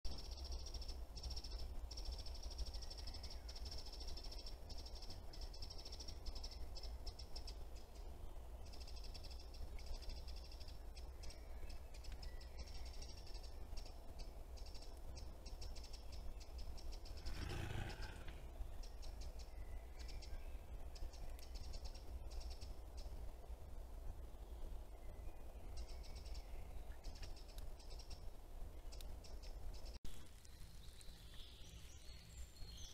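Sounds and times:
steady low rumble: 0:00.1 - 0:32.7
faint bird chirps: 0:00.1 - 0:32.9
short loud animal call: 0:17.2 - 0:18.5.

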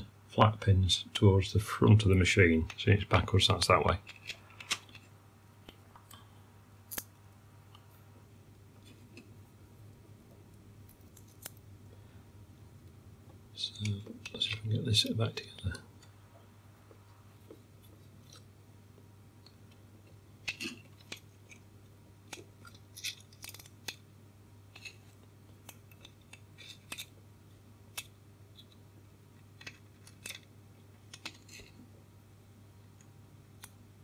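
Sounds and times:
faint low hum: 0:00.0 - 0:34.0.

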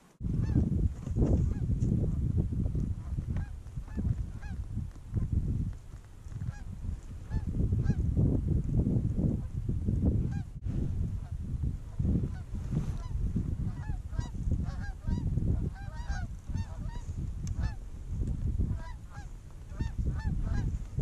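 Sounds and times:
wind rumble on microphone: 0:00.0 - 0:21.0
geese honking: 0:00.4 - 0:00.6, 0:13.0 - 0:17.8, 0:18.7 - 0:20.7.

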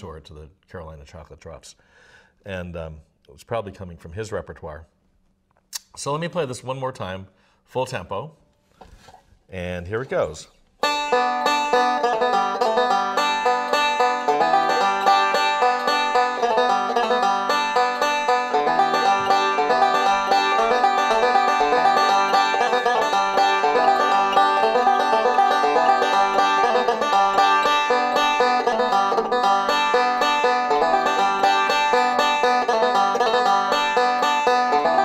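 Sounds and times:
banjo fingerpicked: 0:10.0 - 0:35.0.

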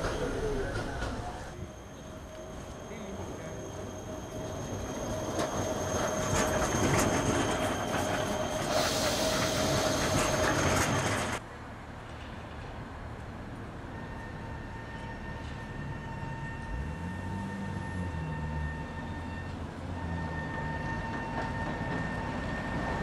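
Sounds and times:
tram wheel clacks: 0:00.0 - 0:11.4, 0:20.6 - 0:23.0
electric tram passing: 0:00.0 - 0:23.0
street sound: 0:00.0 - 0:23.0.

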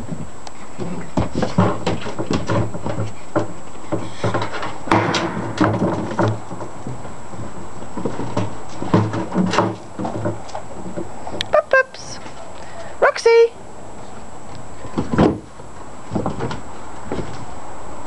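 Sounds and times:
puppy claws scrabbling on plastic: 0:00.0 - 0:11.5.

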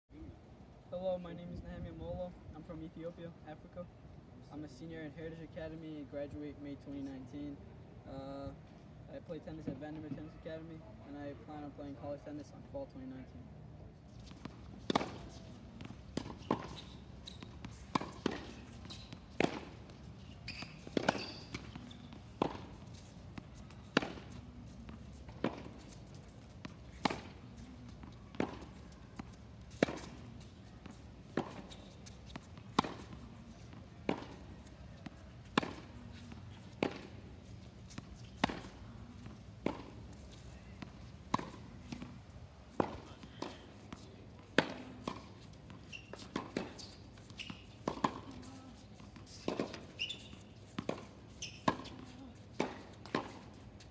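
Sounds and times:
tennis ball bouncing: 0:14.2 - 0:53.9
tennis racket hitting ball: 0:14.3 - 0:53.9.

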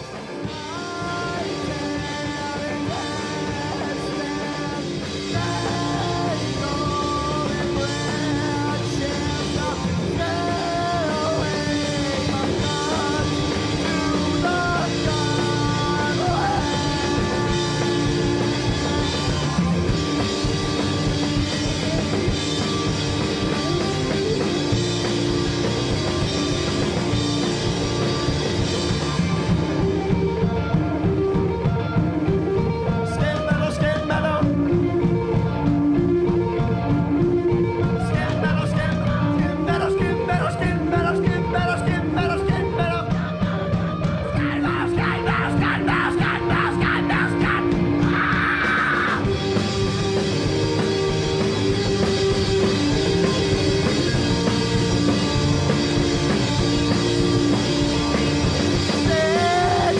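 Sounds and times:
person singing: 0:00.0 - 0:22.3, 0:32.7 - 0:35.6, 0:37.8 - 0:49.7, 0:52.7 - 0:59.9
drums: 0:00.0 - 0:59.9
electric guitars: 0:00.0 - 0:59.9.

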